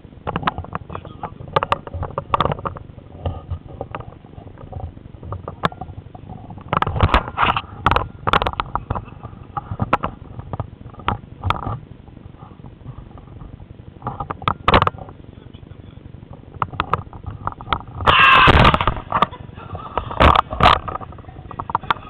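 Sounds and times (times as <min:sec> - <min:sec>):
rush of wind noise: 0:16.6 - 0:22.0.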